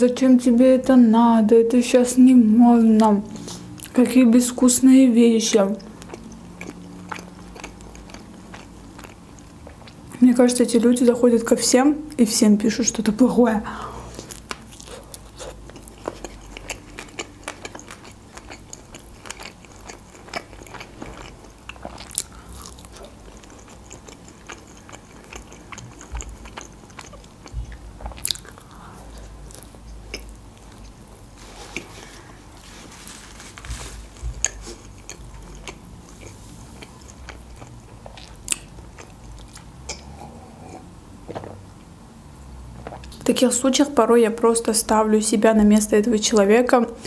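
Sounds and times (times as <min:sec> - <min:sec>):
close chewing with mouth smacks: 0:05.7 - 0:10.2, 0:14.1 - 0:32.2, 0:33.5 - 0:41.4.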